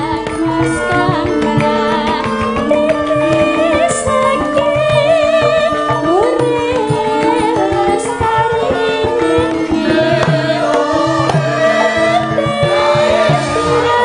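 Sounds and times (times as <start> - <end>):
ringing metallophone notes: 0.0 - 14.0
woman singing ornamented vocal: 0.0 - 14.0
drum strokes: 7.1 - 14.0.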